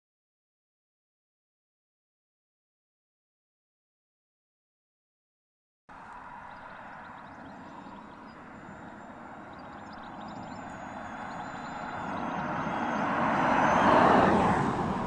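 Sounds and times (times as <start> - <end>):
car tyre and wind noise passing: 5.9 - 15.0.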